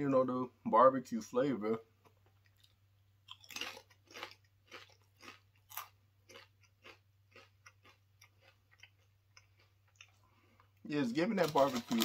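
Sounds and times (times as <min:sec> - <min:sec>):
person chewing crunchy chips: 0:02.4 - 0:12.0.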